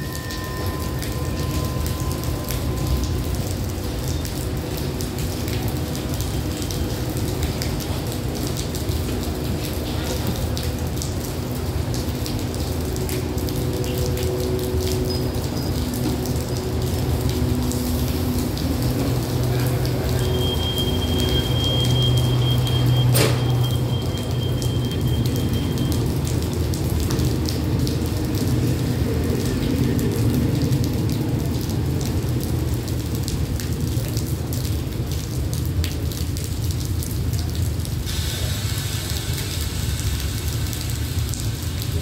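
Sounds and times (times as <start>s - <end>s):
rain hissing: 0.0s - 35.9s, 36.6s - 42.0s.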